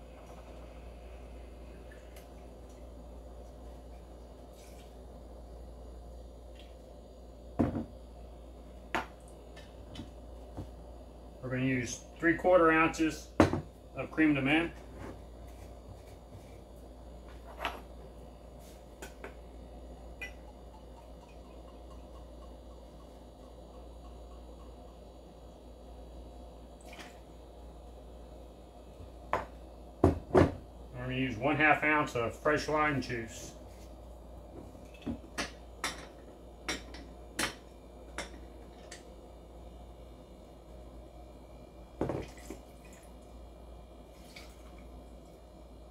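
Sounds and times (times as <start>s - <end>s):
liquid pouring: 44.1s - 44.9s.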